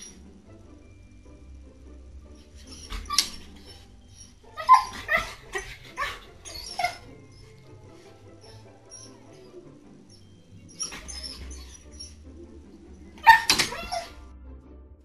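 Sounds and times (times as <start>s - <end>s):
quiet background music: 0.0s - 15.0s
dog crying high-pitched: 2.6s - 9.5s, 10.1s - 12.2s, 13.2s - 14.2s.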